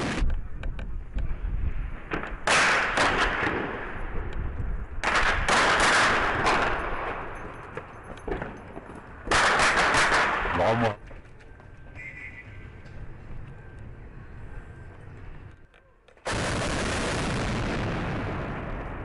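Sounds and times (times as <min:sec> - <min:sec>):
gunfire echoing off buildings: 0:02.0 - 0:04.3, 0:04.9 - 0:11.0, 0:16.2 - 0:19.0.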